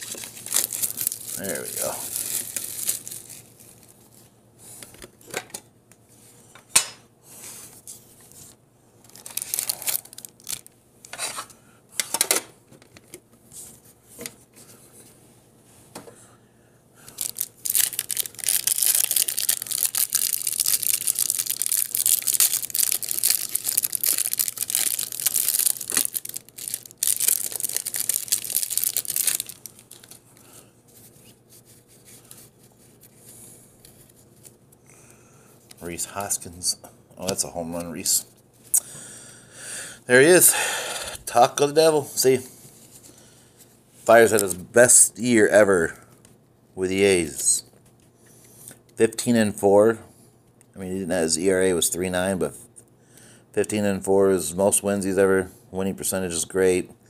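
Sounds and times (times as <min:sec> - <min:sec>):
cellophane crinkling and tearing: 0:00.0 - 0:04.2, 0:09.0 - 0:10.8, 0:17.1 - 0:30.3.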